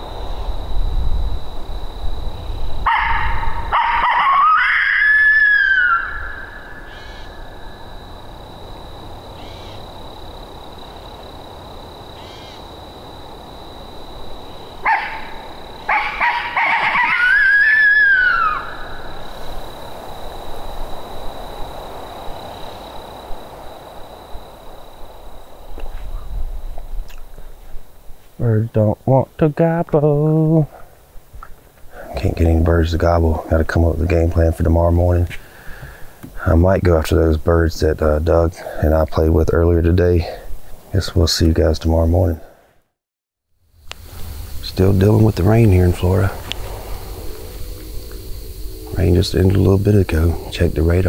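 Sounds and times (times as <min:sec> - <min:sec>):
coyote call barks and howl: 0:02.8 - 0:08.0, 0:14.8 - 0:19.3.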